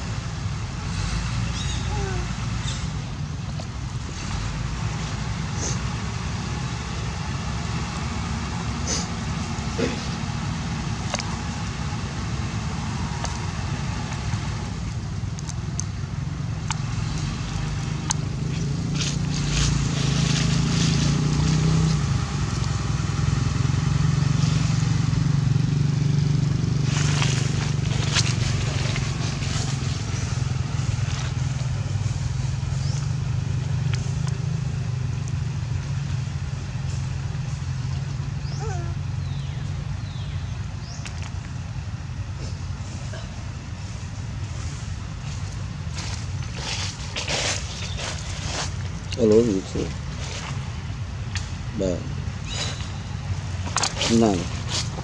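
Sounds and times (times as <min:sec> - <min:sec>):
engine humming: 0:00.0 - 0:55.0
crackles and rustles: 0:26.8 - 0:34.4, 0:43.8 - 0:51.6, 0:52.6 - 0:55.0
faint short squeaky calls: 0:52.4 - 0:53.1.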